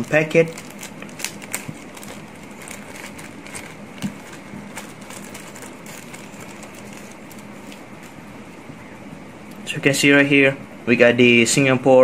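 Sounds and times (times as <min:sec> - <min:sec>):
plastic bag crinkling: 0:00.0 - 0:08.2
steady room hum: 0:00.0 - 0:12.0.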